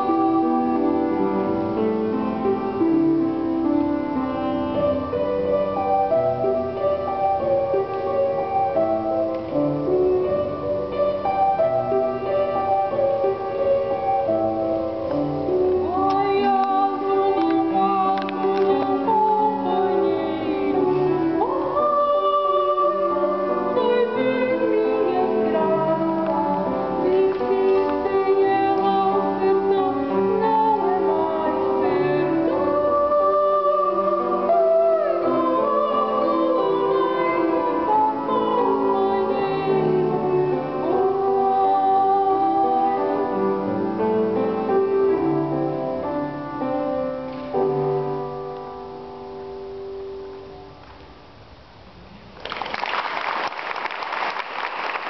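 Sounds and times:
woman singing operatically: 0.0s - 1.4s, 15.8s - 43.7s
upright piano: 0.0s - 55.0s.

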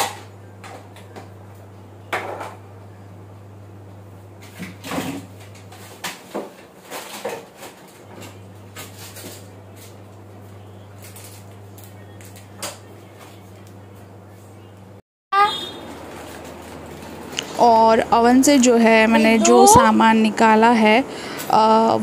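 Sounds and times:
refrigerator hum: 0.0s - 22.0s
rummaging in refrigerator: 4.4s - 10.0s.

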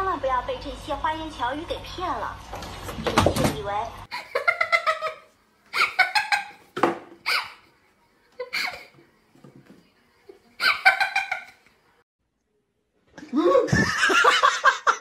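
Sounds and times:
person laughing hard: 13.4s - 15.0s.

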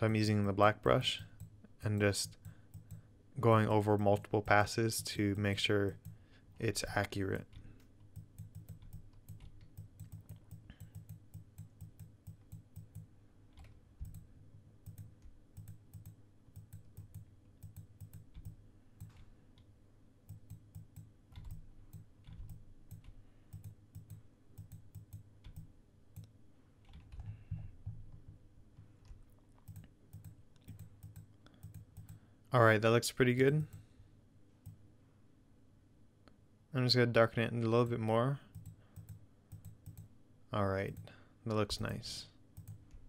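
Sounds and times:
faint steady hum: 0.0s - 43.0s
mouse and keyboard clicking: 7.3s - 19.7s, 20.3s - 27.4s.

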